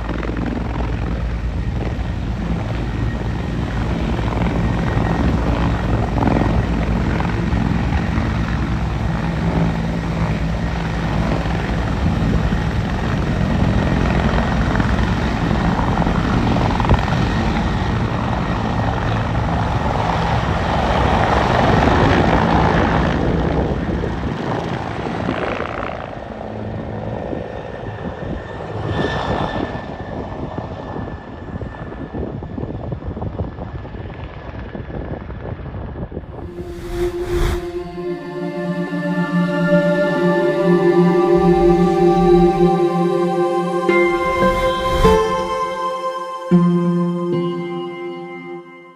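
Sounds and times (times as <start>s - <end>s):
helicopter rotor chop: 0.0s - 20.2s
turbine whine: 0.0s - 33.0s, 36.3s - 48.9s.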